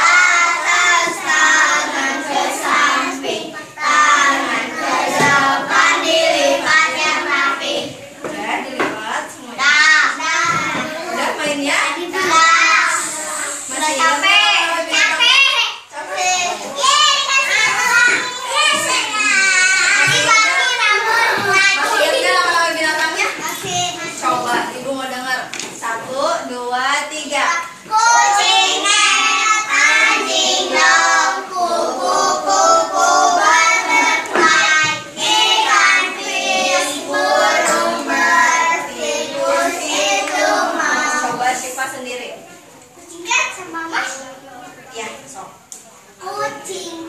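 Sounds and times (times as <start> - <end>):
children singing: 0.0 - 8.2, 9.6 - 11.4, 12.2 - 15.2, 16.1 - 22.7, 27.7 - 41.7.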